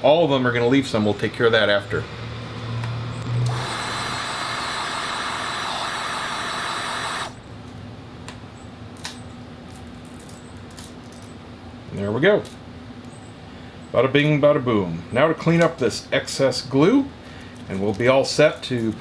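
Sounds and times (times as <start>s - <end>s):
heat gun hissing: 3.4s - 7.4s.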